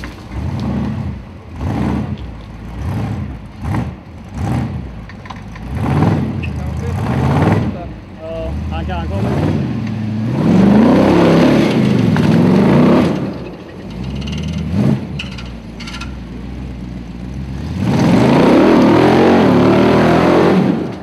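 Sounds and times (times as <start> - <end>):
off-road car engine revving: 0.0 - 21.0.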